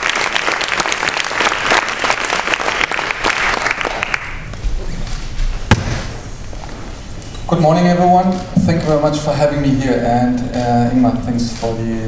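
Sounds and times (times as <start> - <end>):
audience applauding: 0.0 - 4.5.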